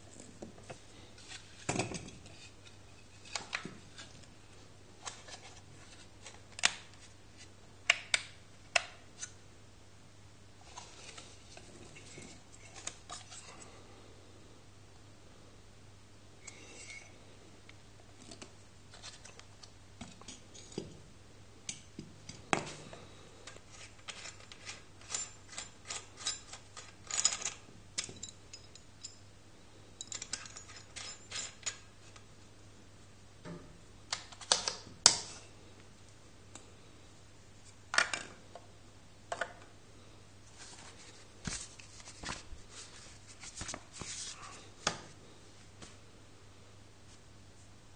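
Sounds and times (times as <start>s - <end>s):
paper rustling: 40.5s - 44.5s.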